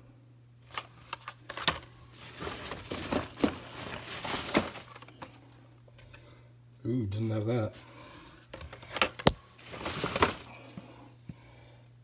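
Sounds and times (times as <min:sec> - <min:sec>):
toy packaging clicking and crinkling: 0:00.6 - 0:05.4.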